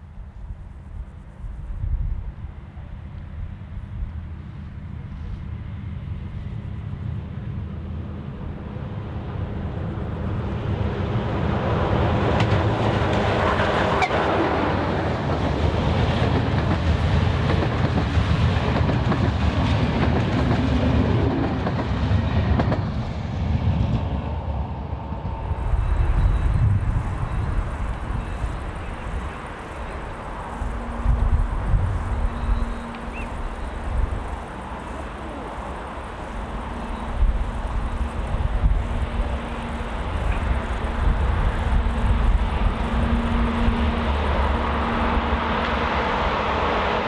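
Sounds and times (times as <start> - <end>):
diesel locomotive passing: 0.0 - 47.0
steady low rumble: 22.4 - 47.0.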